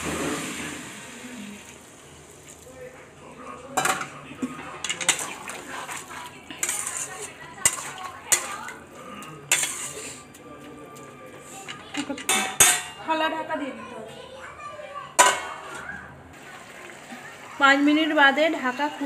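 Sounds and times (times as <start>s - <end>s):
water hissing in hot pan: 0.0s - 2.6s
metal spatula scraping pan: 4.8s - 8.8s, 9.5s - 10.3s.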